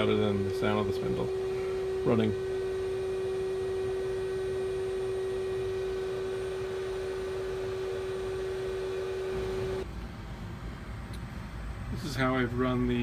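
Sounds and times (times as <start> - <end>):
spindle whining: 0.0 - 9.9.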